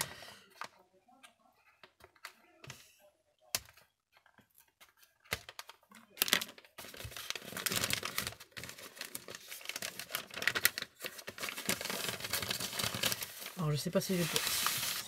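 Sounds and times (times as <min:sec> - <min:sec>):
paper crinkling and rustling: 0:03.6 - 0:15.0.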